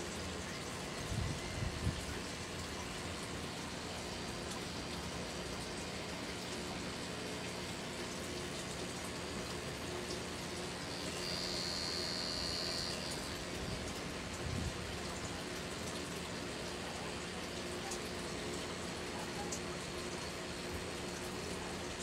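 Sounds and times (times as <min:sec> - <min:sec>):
thin high whine: 0:10.5 - 0:14.0
tattoo machine humming: 0:10.8 - 0:13.8.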